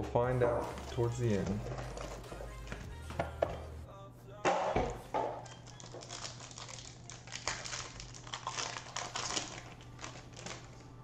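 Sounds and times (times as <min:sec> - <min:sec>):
card pack wrapper crinkling: 0:05.4 - 0:11.0.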